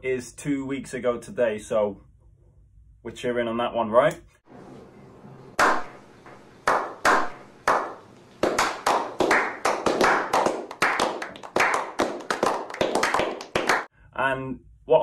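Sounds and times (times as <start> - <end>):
men clapping: 5.6 - 13.9.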